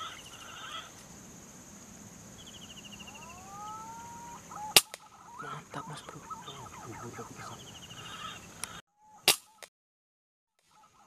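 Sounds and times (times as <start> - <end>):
high-pitched insect drone: 0.0 - 4.6
rising whistled call: 2.6 - 9.2.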